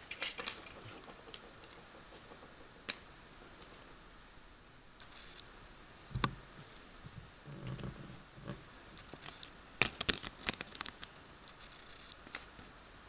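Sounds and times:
sharp crackles: 8.9s - 12.7s
paper crinkling: 9.0s - 12.7s.

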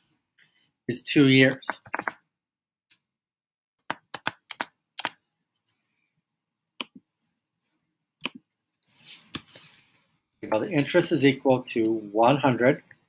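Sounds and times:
keyboard and mouse clicks: 1.7s - 2.2s, 3.8s - 5.2s, 8.2s - 8.5s.

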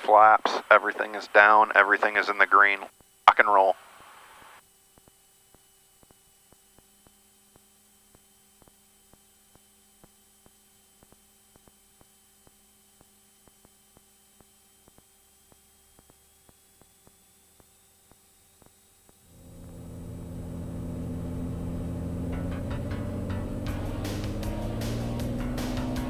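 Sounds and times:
steady tones: 19.3s - 26.0s.

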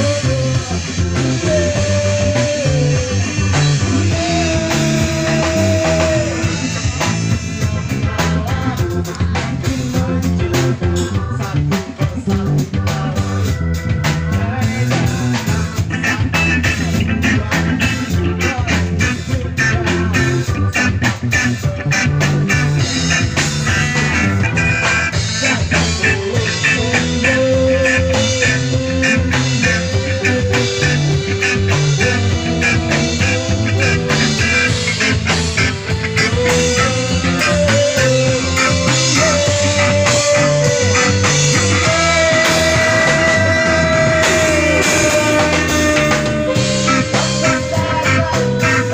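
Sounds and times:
bass guitar: 0.0s - 48.9s
drum kit: 0.0s - 48.9s
electric guitars: 0.0s - 48.9s.

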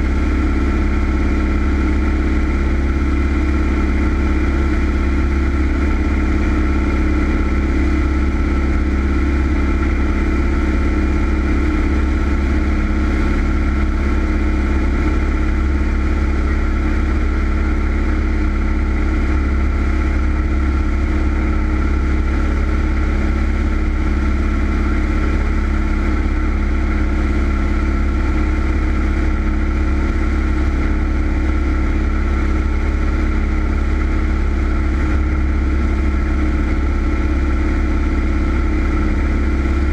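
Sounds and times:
propeller plane engine droning: 0.0s - 39.9s.

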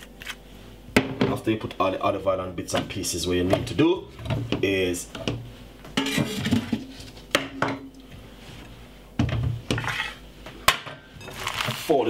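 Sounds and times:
glass bowl sliding on board: 9.7s - 10.2s.

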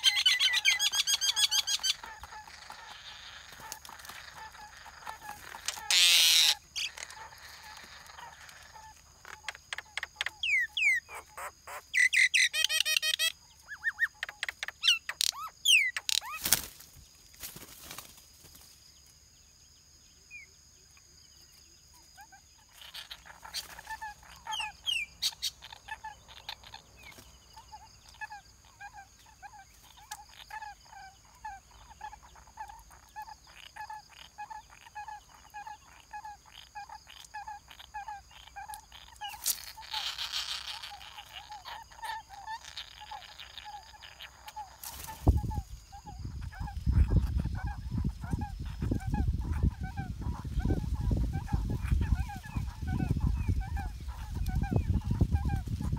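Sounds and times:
higher sharper bird calls: 0.0s - 16.7s
wind buffeting microphone: 45.1s - 55.9s.

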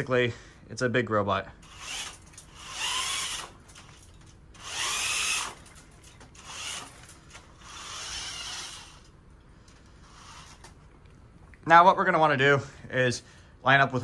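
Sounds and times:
robot drive motors whining: 1.6s - 4.0s, 4.6s - 9.1s.

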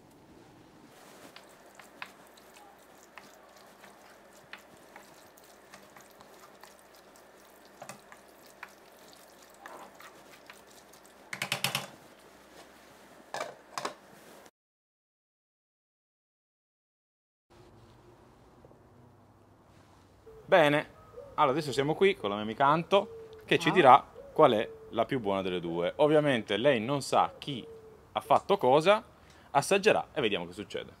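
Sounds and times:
wooden spoon stirring and scraping: 0.9s - 14.5s.

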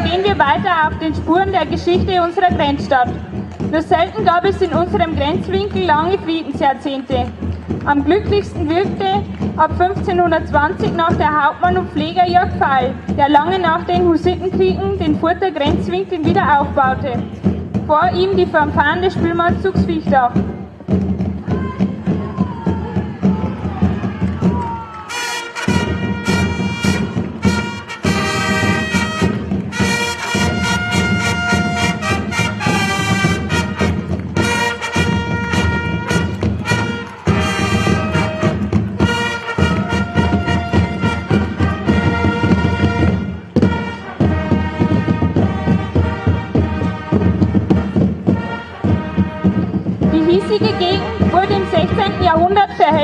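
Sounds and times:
drums beating steady rhythm: 0.0s - 53.0s
fanfare trumpets playing a march: 24.9s - 53.0s.

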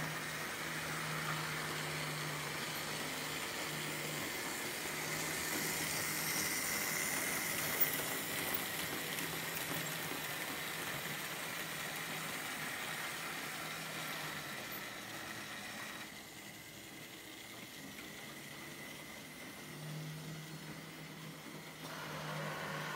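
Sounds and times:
model train wagons rolling: 0.0s - 22.9s
small electric motors whirring: 0.0s - 22.9s.

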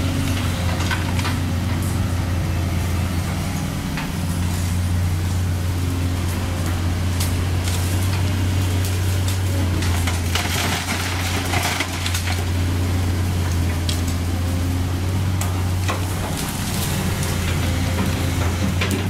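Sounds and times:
excavator diesel engine: 0.0s - 19.0s
asphalt chunks crashing into truck bed: 9.8s - 12.6s.

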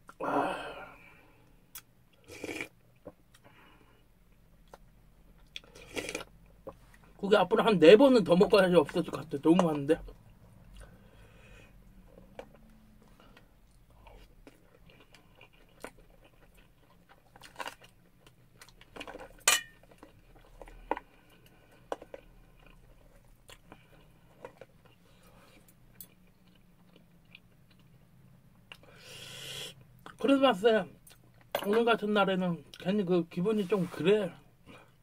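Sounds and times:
person chewing food: 1.4s - 7.2s, 9.6s - 30.2s.

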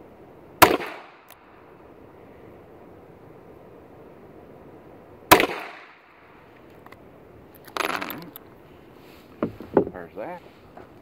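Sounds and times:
brass cases clattering on wood: 7.7s - 8.4s.

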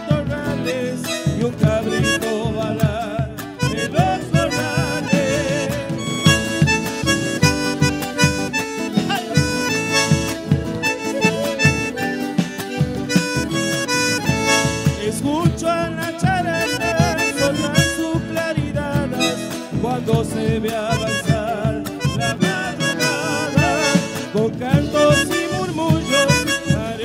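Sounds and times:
steady drum beats: 0.0s - 27.0s
strummed acoustic guitars: 0.0s - 27.0s.

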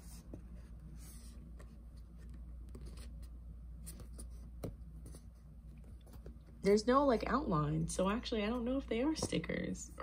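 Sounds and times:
low steady hum: 0.0s - 10.0s.

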